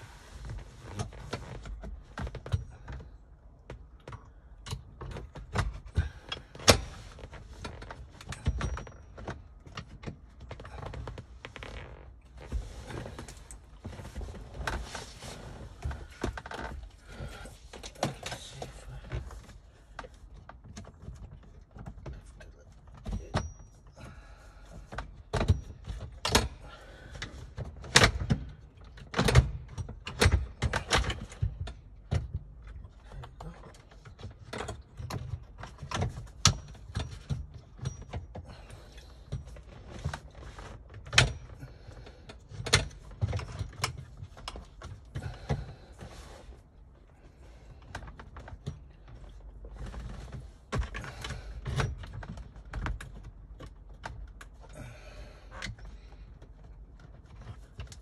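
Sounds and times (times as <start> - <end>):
tools and parts clicking and knocking: 0.9 - 11.2, 17.7 - 24.2, 24.8 - 45.6.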